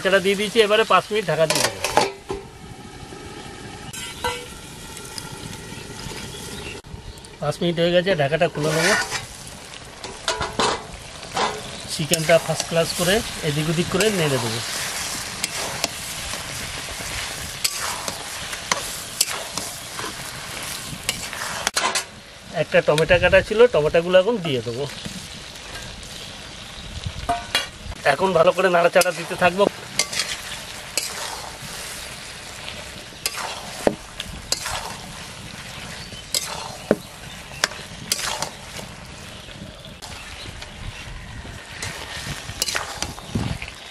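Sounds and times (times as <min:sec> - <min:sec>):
chicken sizzling in a wok: 0:00.0 - 0:43.9
spatula scraping a pan: 0:08.6 - 0:22.0, 0:29.0 - 0:39.4, 0:41.7 - 0:43.6.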